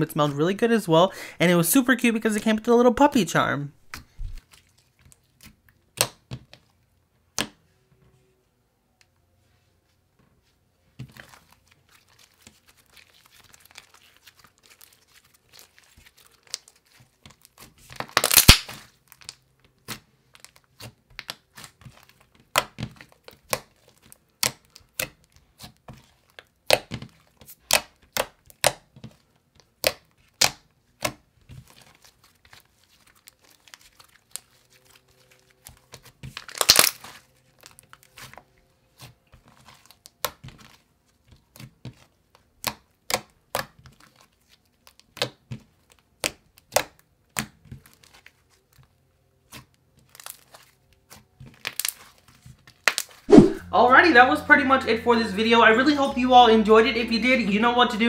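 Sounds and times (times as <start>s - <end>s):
hands squishing clay slime: 3.8s - 7.7s, 10.9s - 53.6s
sticky clicks and pops: 18.0s - 18.8s.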